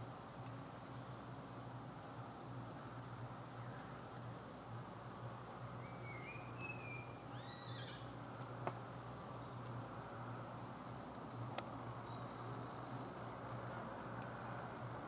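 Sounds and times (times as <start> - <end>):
low steady hum: 0.0 - 15.0
faint high chirping: 5.7 - 8.1
whistled call: 5.9 - 8.0.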